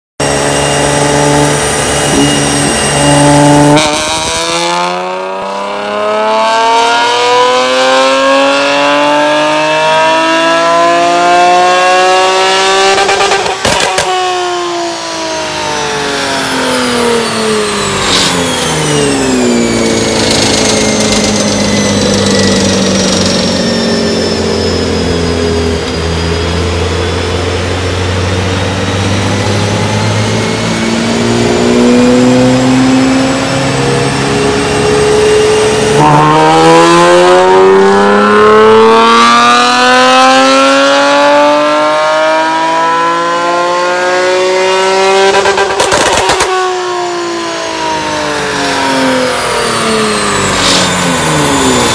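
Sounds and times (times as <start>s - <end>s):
car engine revving on dyno: 0.2s - 51.9s
exhaust pop: 13.0s - 14.2s.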